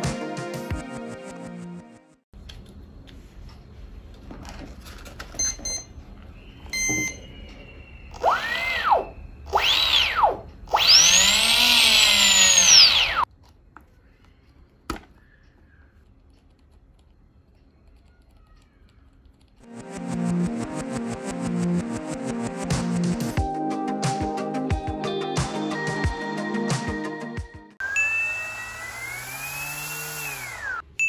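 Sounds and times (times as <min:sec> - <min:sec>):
short electronic beeps: 0:06.8 - 0:07.4
electric motor whine: 0:08.1 - 0:13.3, 0:27.8 - 0:30.8.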